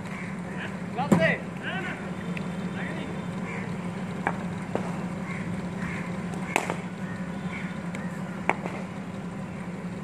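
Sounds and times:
steady low hum: 0.0s - 10.0s
faint chirping calls: 5.0s - 8.5s
bat striking cricket ball: 6.5s - 6.9s.

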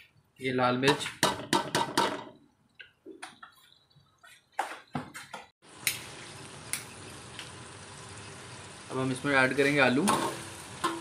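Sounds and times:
spices sizzling in hot oil: 5.6s - 11.0s.

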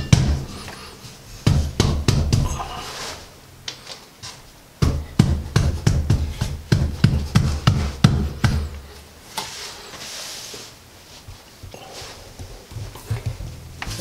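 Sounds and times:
short rustle: 9.2s - 14.0s
wooden knocks: 12.4s - 14.0s.

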